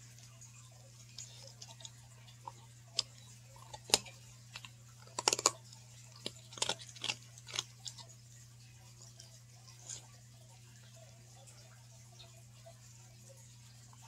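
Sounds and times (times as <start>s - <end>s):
dog crunching a cookie: 0.0s - 8.2s.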